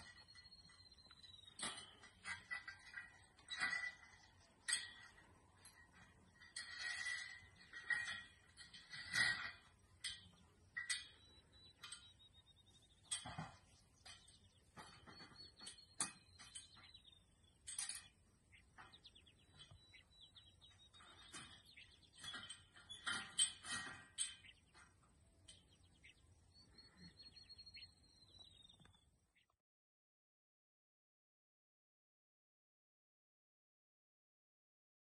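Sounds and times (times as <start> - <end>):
metal gate clinking: 0.0 - 28.9
faint birdsong trills: 0.0 - 29.6.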